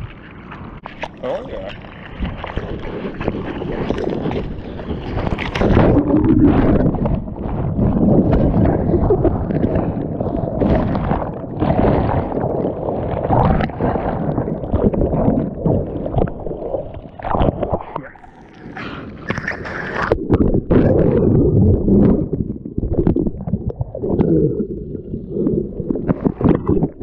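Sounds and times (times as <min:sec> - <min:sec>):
knocks and splashes: 0:00.0 - 0:18.4, 0:25.8 - 0:27.0
surf water rushing and gurgling: 0:00.0 - 0:20.2.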